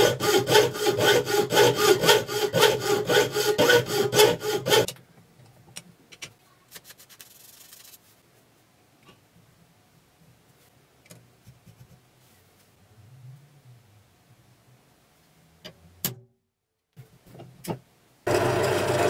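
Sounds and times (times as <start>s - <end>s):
hand saw rasping through steel: 0.0s - 4.9s.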